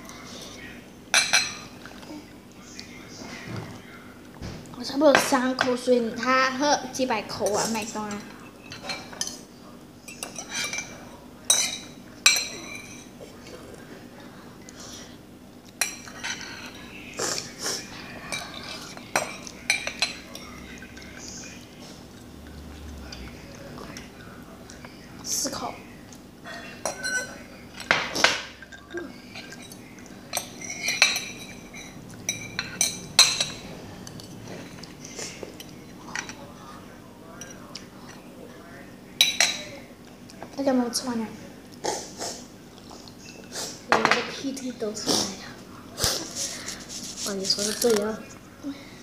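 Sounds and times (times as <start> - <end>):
metal forks clinking on ceramic plate: 10.1 - 13.1, 26.8 - 28.0, 28.6 - 34.9.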